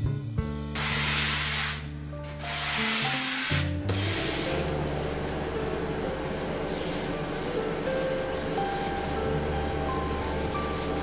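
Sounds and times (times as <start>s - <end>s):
background music: 0.0s - 4.7s.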